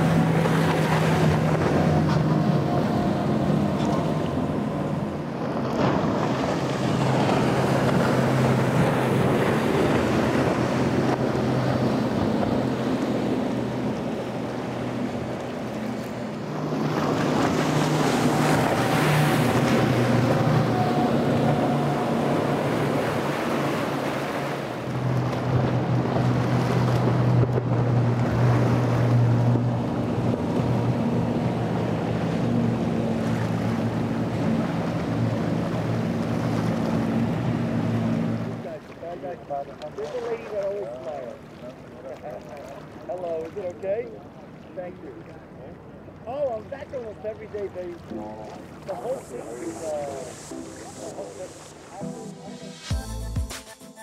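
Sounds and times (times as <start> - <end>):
boat engine drone: 0.0 - 53.3
rush of spray: 48.8 - 52.9.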